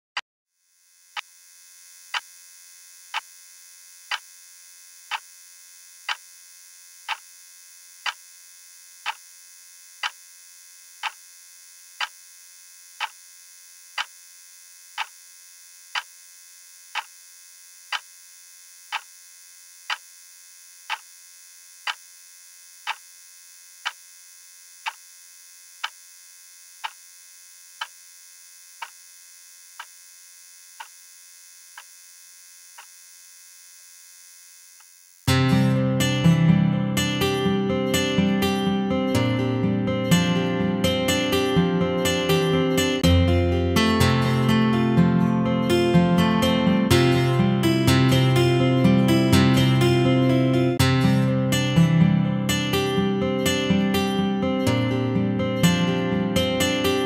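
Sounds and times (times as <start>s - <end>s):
electric buzz: 0.5s - 57.0s
sharp ticking: 11.0s - 11.2s, 16.9s - 17.2s, 18.9s - 19.1s, 22.8s - 23.0s.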